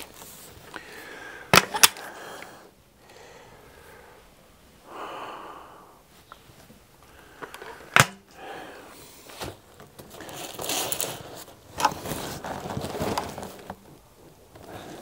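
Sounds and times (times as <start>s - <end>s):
air rifle barrel snapping shut: 1.5s - 2.1s, 7.5s - 8.3s
rifle handling rustling and knocking: 1.5s - 2.1s.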